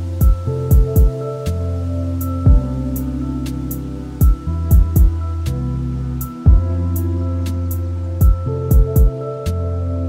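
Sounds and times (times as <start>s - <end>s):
held low tones: 0.0s - 10.0s.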